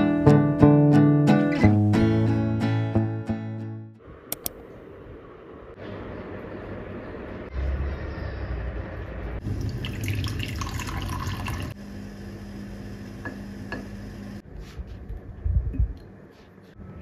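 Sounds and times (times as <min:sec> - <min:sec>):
water pouring into a mug: 0:09.5 - 0:11.8.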